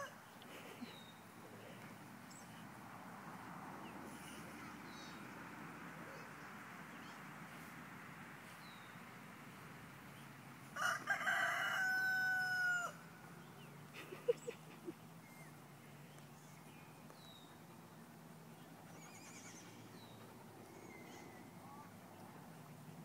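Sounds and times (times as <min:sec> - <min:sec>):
small birds chirping: 0:00.2 - 0:07.7, 0:08.4 - 0:09.2, 0:13.3 - 0:23.0
rooster crowing: 0:10.8 - 0:13.0.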